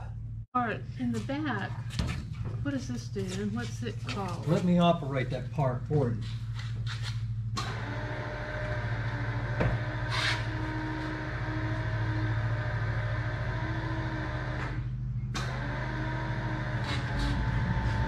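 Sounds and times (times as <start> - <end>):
electric flap motor humming: 15.4 - 18.0.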